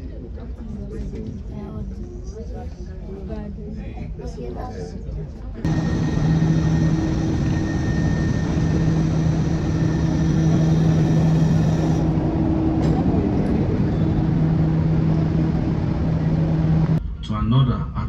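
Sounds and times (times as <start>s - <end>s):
train rumbling with low hum: 5.5s - 18.0s.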